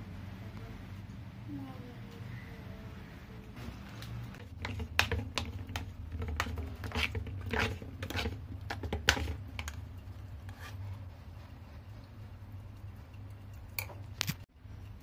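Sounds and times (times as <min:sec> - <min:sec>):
spoon scraping metal pot: 0:04.4 - 0:15.0.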